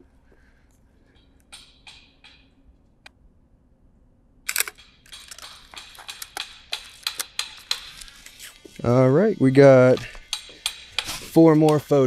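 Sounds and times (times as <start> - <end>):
mechanical clicks and rattles: 4.5 - 8.4.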